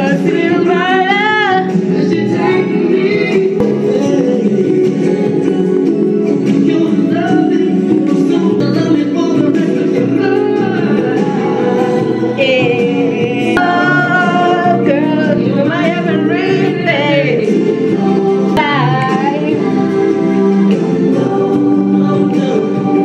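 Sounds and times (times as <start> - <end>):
soul song with singer: 0.0 - 23.0.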